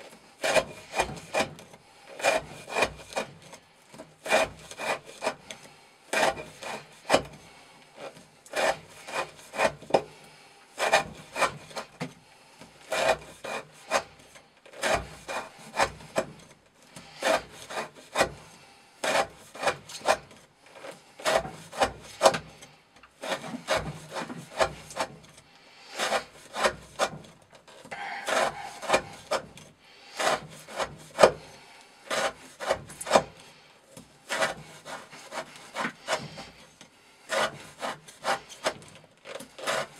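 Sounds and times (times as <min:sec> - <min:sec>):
knife blade carving wood: 0:00.0 - 0:10.2, 0:10.8 - 0:39.9.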